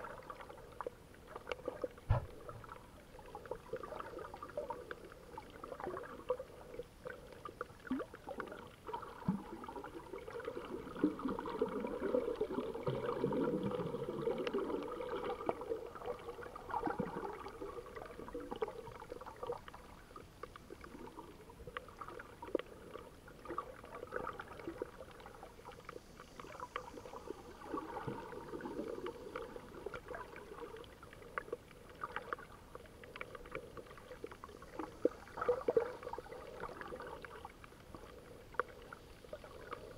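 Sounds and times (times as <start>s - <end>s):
underwater clicks and crackles: 0.0s - 39.9s
underwater water rush: 0.0s - 39.9s.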